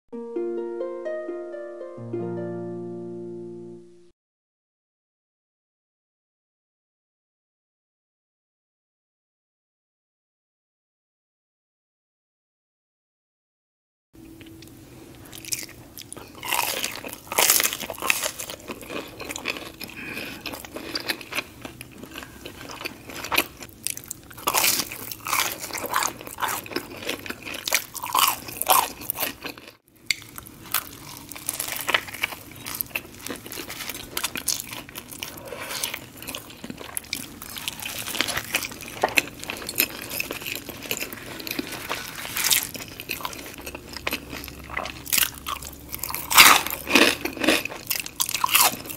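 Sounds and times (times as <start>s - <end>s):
crunchy bites and chewing: 15.3s - 48.9s.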